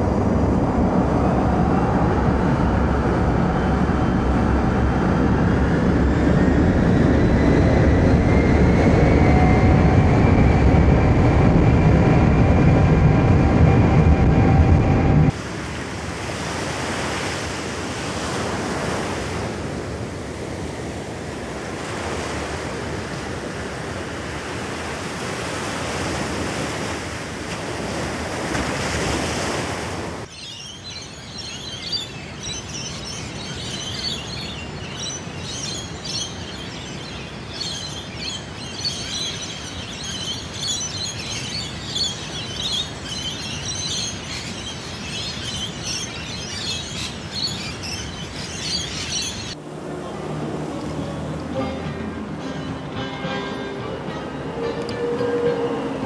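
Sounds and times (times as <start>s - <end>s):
ocean surf on beach: 0.0s - 7.8s, 10.9s - 56.0s
birds chirping chorus: 30.3s - 50.2s.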